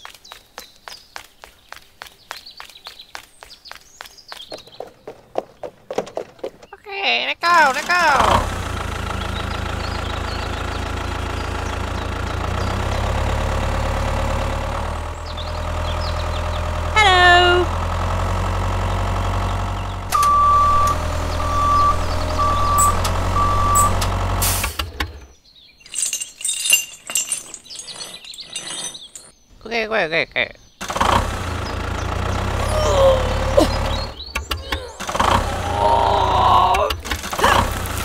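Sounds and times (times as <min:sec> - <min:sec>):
tractor engine running: 0:07.4 - 0:29.4, 0:30.8 - 0:38.0
reversing beeps: 0:20.1 - 0:24.0.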